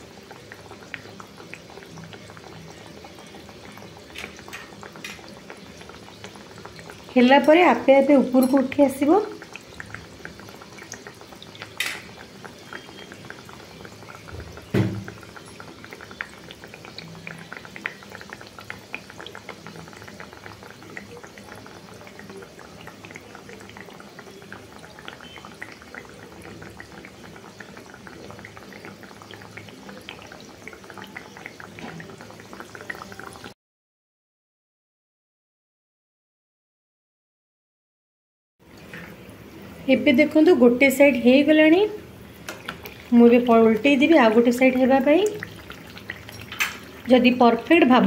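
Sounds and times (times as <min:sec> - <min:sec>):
batter deep-frying in oil: 0:00.0 - 0:33.6, 0:38.6 - 0:48.0
loud thump: 0:14.7 - 0:15.0.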